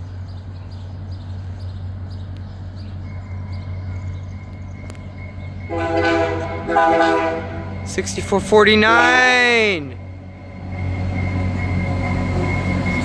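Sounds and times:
diesel locomotive drone: 0.0 - 13.0
train air horn: 5.7 - 7.8.

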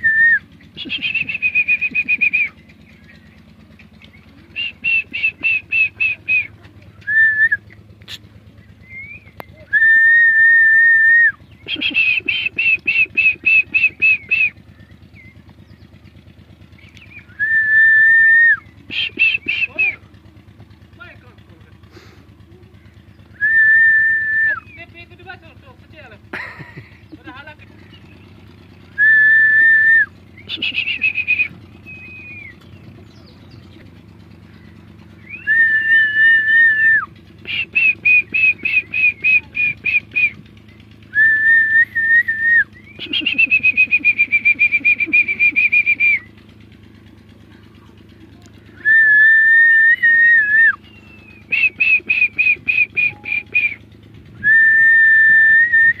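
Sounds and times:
shrill whistling: 0.0 - 3.4, 4.0 - 7.8, 8.7 - 15.9, 16.7 - 20.0, 23.2 - 24.9, 28.1 - 33.5, 34.5 - 40.4, 41.0 - 46.4, 48.8 - 56.0.

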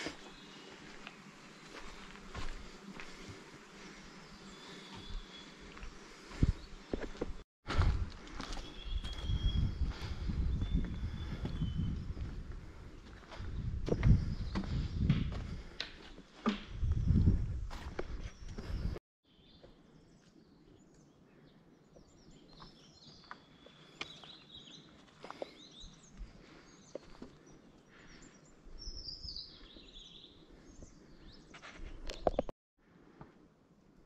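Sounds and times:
faint outdoor ambience: 0.0 - 7.3
small birds chirping: 0.0 - 7.4, 8.4 - 32.5.

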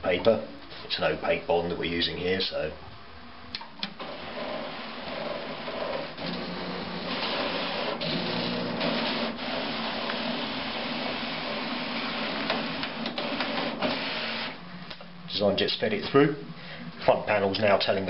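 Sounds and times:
paper rubbing over rollers: 4.0 - 14.6
plotter feed motor running: 4.0 - 14.6.

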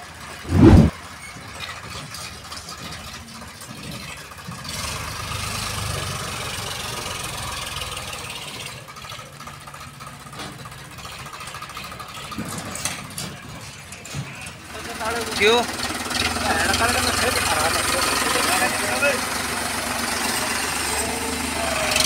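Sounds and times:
tractor diesel engine running: 1.7 - 22.0.

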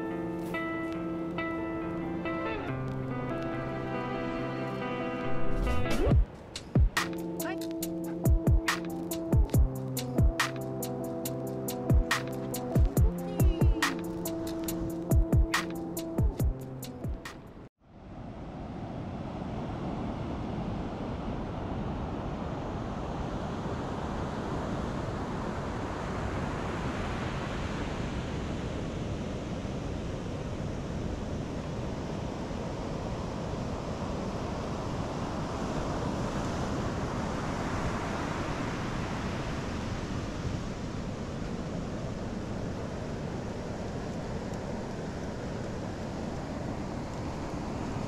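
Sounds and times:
ocean waves on beach: 17.9 - 48.0.

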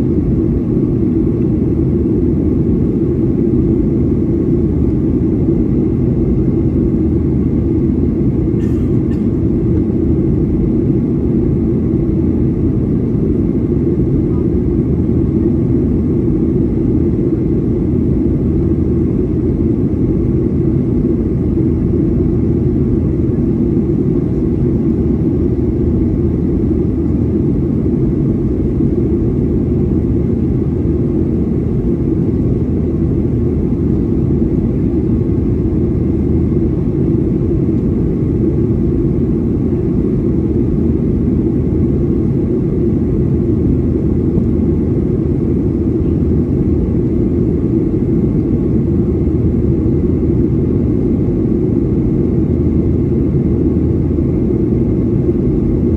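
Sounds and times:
jet engines and rushing air: 0.0 - 55.9.

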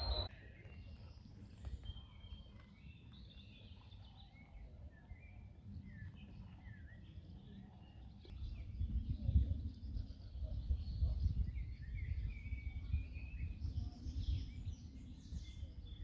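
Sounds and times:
low rumble: 0.0 - 0.3
small birds chirping: 0.0 - 16.0.

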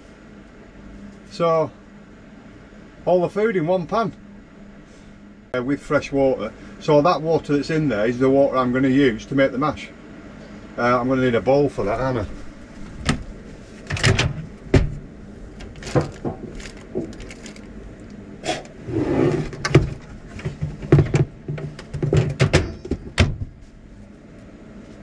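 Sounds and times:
cupboard doors opening and shutting: 13.9 - 15.0, 15.6 - 17.5, 18.6 - 23.6.

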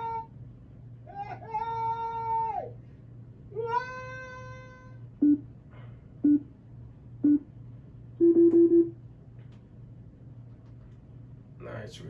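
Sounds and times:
steady held tone: 3.9 - 5.5, 6.2 - 6.5, 7.2 - 7.6
longer stuttering beep: 6.2 - 6.5
short beeps: 6.2 - 6.5, 7.2 - 7.5, 8.2 - 9.0.

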